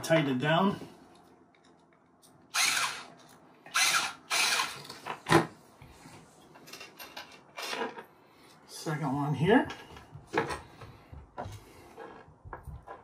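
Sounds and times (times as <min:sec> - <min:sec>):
powered screwdriver running: 0:02.5 - 0:03.1, 0:03.7 - 0:04.9.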